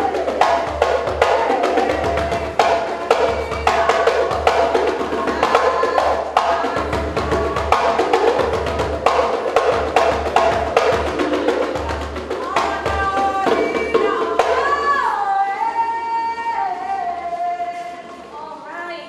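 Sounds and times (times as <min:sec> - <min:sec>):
fast drum strokes: 0:00.0 - 0:15.1.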